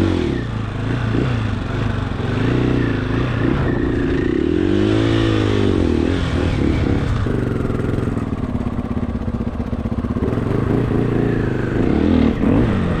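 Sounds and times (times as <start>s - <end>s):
dirt bike engine revving: 0.0s - 13.0s.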